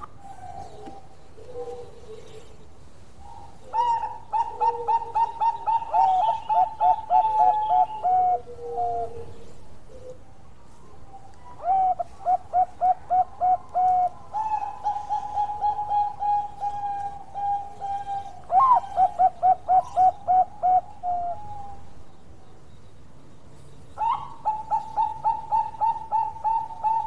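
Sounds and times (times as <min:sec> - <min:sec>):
faint lower coo: 0:00.0 - 0:02.6, 0:03.2 - 0:21.9
dove cooing in staccato bursts: 0:03.0 - 0:10.2, 0:11.6 - 0:21.8, 0:24.0 - 0:27.0.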